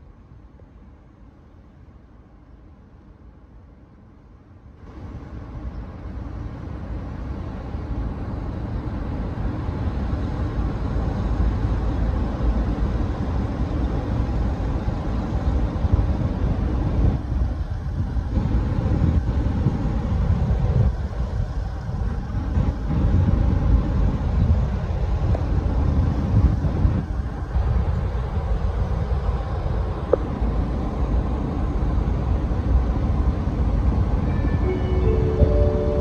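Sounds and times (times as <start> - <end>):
faint machinery hum: 0.0 - 36.0
wind buffeting microphone: 7.8 - 34.3.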